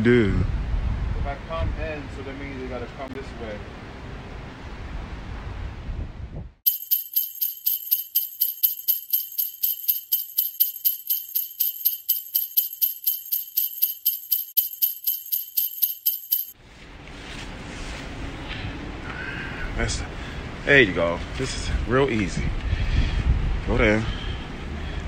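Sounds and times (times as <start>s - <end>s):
jingle bells shaken: 6.7s - 16.6s.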